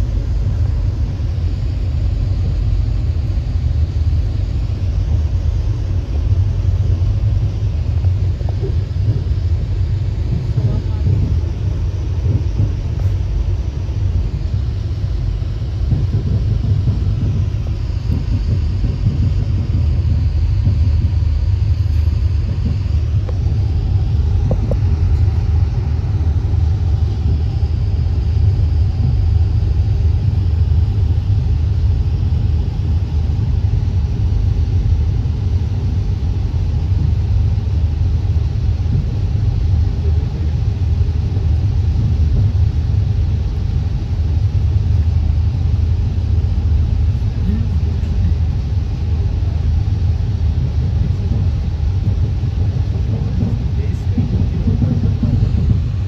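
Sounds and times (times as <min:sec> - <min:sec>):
faint high whine: 0:00.0 - 0:56.0
train car rumbling on track: 0:00.0 - 0:56.0.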